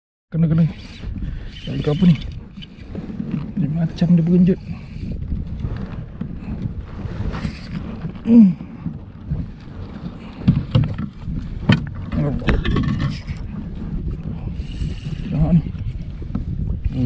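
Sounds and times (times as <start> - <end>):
low rumble of water: 0.4 - 17.0
wind buffeting microphone: 0.4 - 17.0.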